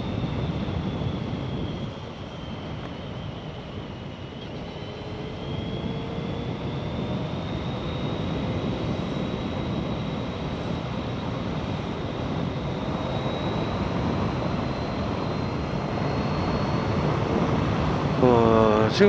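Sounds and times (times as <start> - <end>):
road and wind noise: 0.0 - 19.0.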